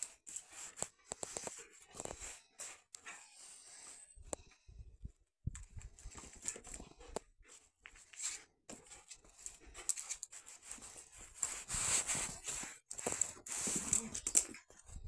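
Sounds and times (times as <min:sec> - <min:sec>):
dogs scuffling and panting: 0:05.6 - 0:14.9.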